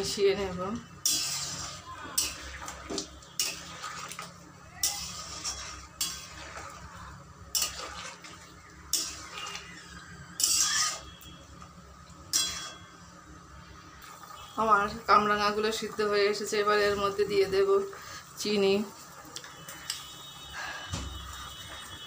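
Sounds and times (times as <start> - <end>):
metal spoon scraping a pan: 1.0 - 6.9, 7.5 - 11.4, 12.3 - 12.9.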